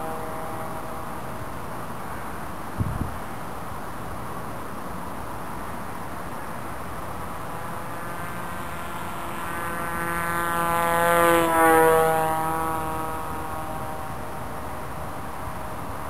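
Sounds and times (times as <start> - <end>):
model aircraft motor and propeller: 0.0 - 16.0.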